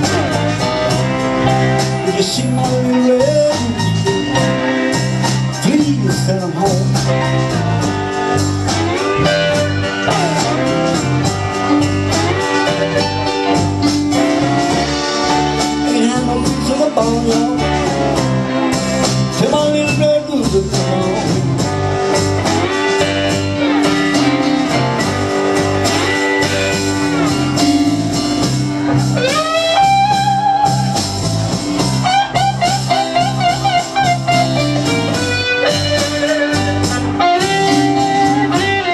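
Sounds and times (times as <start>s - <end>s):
bent guitar notes: 0.0s - 38.9s
live blues band playing: 0.0s - 38.9s.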